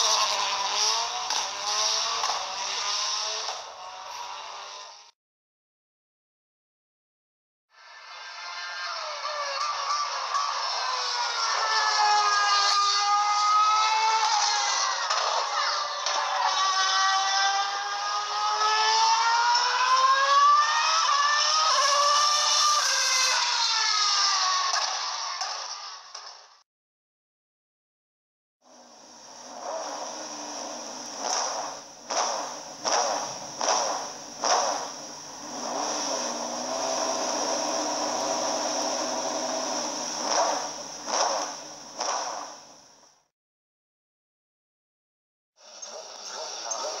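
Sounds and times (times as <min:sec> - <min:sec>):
racing car engine revving: 0:00.0 - 0:05.2, 0:07.8 - 0:25.5, 0:28.7 - 0:43.0.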